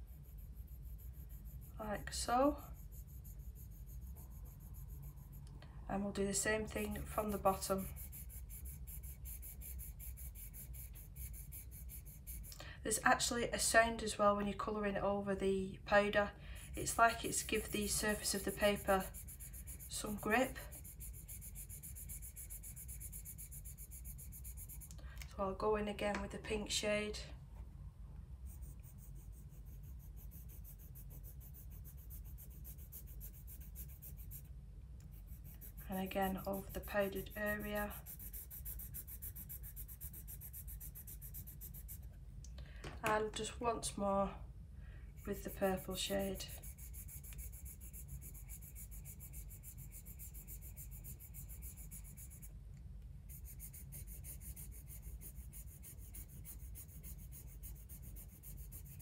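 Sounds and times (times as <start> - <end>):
pencil shading on paper: 0.0 - 5.5, 6.3 - 12.5, 16.6 - 24.9, 28.5 - 42.1, 45.2 - 52.5, 53.3 - 59.0.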